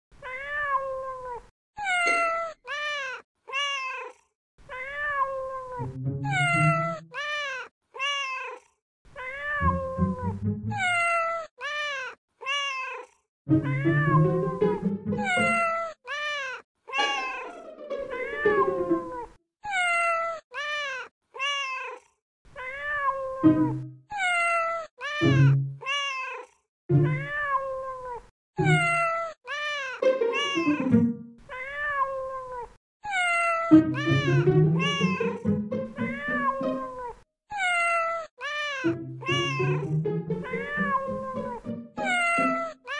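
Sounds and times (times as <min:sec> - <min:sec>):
cat meowing: 0:00.2 - 0:14.5, 0:15.2 - 0:17.6, 0:19.1 - 0:30.8, 0:31.4 - 0:35.4, 0:36.0 - 0:42.9
music track: 0:02.0 - 0:02.4, 0:05.8 - 0:07.1, 0:09.6 - 0:11.0, 0:13.5 - 0:15.8, 0:17.0 - 0:19.4, 0:23.4 - 0:24.0, 0:25.2 - 0:25.8, 0:26.9 - 0:27.4, 0:28.6 - 0:29.1, 0:30.0 - 0:31.4, 0:33.7 - 0:37.0, 0:38.8 - 0:42.9
deep low sounds: 0:09.9 - 0:10.8.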